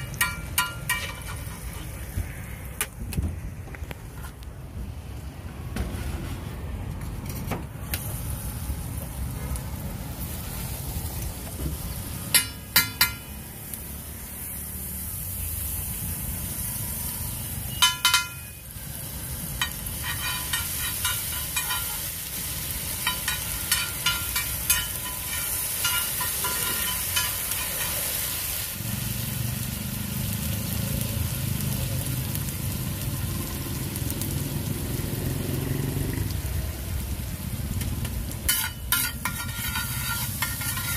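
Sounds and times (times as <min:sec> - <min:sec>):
onions sizzling on griddle: 0:00.0 - 0:40.9
spatula scraping iron: 0:19.6 - 0:22.0, 0:23.1 - 0:28.0, 0:38.5 - 0:40.9.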